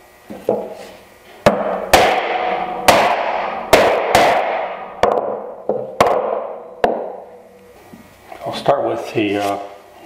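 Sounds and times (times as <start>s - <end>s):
wooden mallet striking iron: 1.4s - 7.4s.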